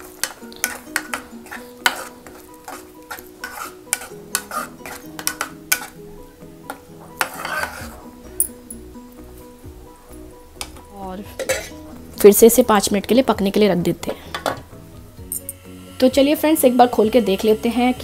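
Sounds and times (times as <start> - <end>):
spatula scraping a pan: 0.0 - 6.0, 6.7 - 8.2, 11.4 - 11.8.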